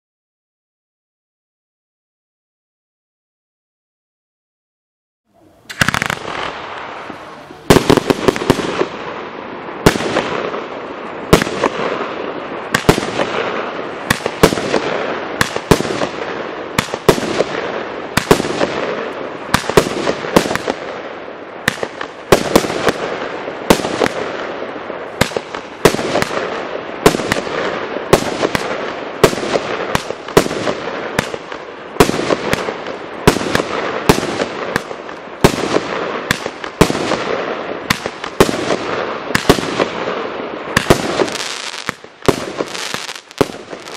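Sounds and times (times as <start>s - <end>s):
firework reports: 5.3s - 43.9s.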